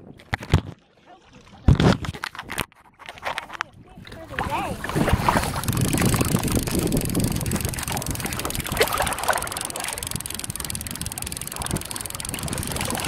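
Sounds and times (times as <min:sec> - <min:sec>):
wind buffeting microphone: 0:03.6 - 0:13.0.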